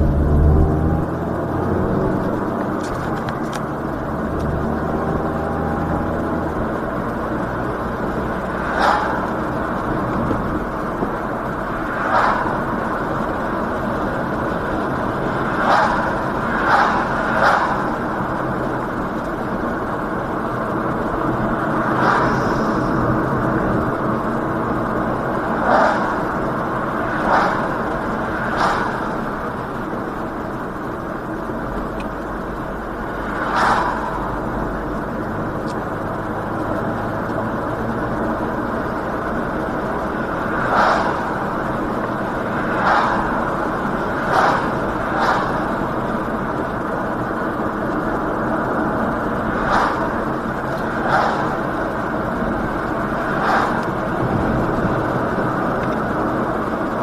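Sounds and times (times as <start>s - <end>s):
car cabin road and engine noise: 0.0s - 57.0s.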